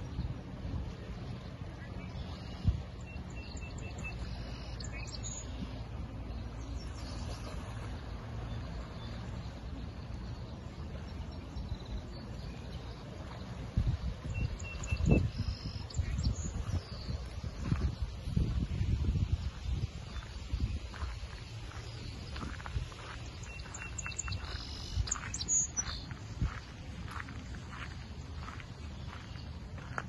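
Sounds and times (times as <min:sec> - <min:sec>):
wind on microphone: 0:00.0 - 0:05.0, 0:13.0 - 0:30.0
lake water rushing: 0:00.0 - 0:30.0
small birds chirping: 0:01.4 - 0:30.0.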